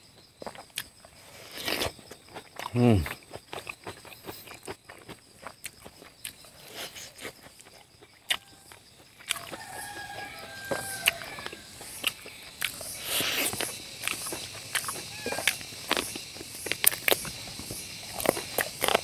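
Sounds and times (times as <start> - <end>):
chewing and eating sounds: 0.4 - 19.0
chicken calling: 9.3 - 12.3, 14.8 - 15.7.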